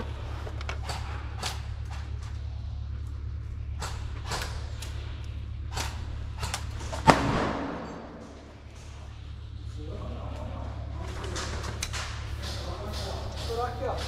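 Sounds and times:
steady low hum: 0:00.0 - 0:14.0
loud sharp bang: 0:07.0 - 0:08.4.

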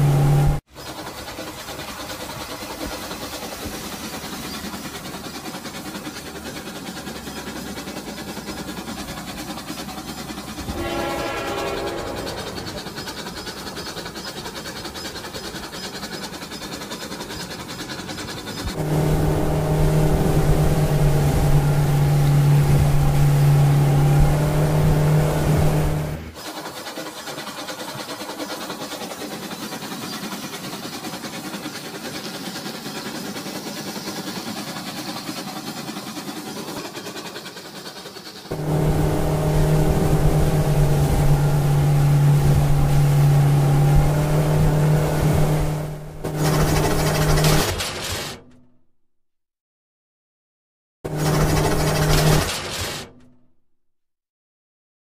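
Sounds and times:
toy motor buzzing hum: 0:24.5 - 0:41.8.

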